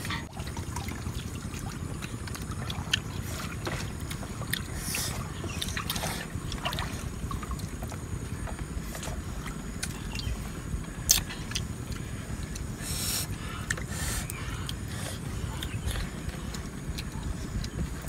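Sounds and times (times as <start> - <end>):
wind on microphone: 15.3 - 18.0.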